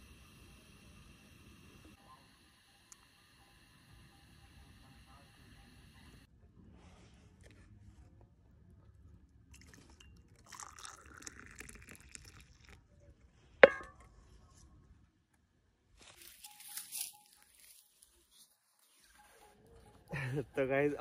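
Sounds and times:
tea pouring into glass: 0:09.6 - 0:12.9.

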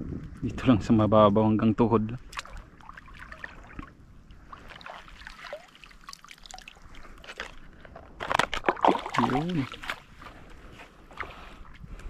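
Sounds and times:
small clicks and splashes: 0:02.2 - 0:10.0
seawater trickling and lapping: 0:02.2 - 0:12.0.

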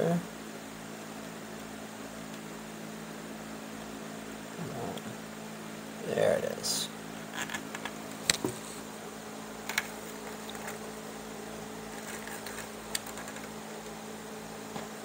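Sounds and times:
electrical hum: 0:00.0 - 0:15.0
cane strand clicks and rustles: 0:09.6 - 0:10.9, 0:11.9 - 0:13.6.

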